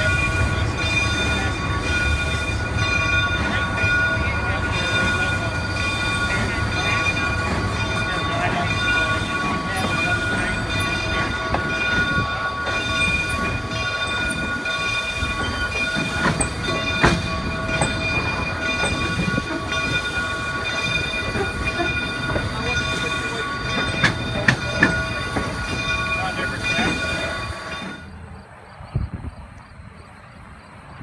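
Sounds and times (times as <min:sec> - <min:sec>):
train rumble: 0:00.0 - 0:31.0
wheels clicking over rail joints: 0:00.4 - 0:28.2.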